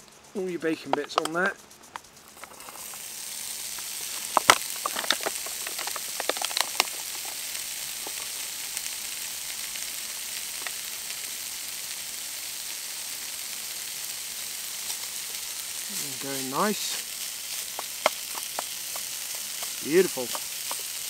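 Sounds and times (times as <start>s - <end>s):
oil crackling and popping: 0.9s - 21.0s
bacon sizzling in a pan: 1.1s - 21.0s.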